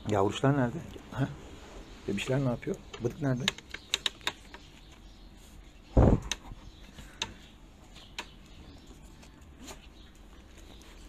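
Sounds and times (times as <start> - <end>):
sharp clicks: 2.7 - 4.7.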